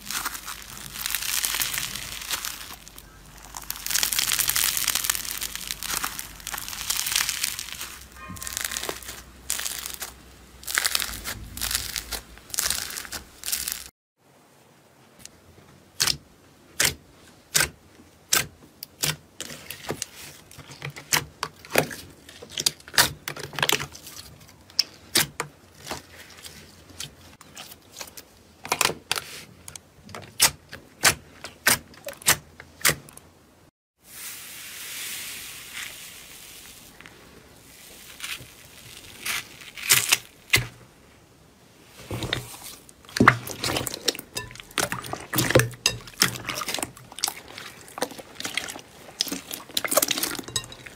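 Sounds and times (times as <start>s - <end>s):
slime squelching: 0.0s - 13.9s, 41.8s - 50.9s.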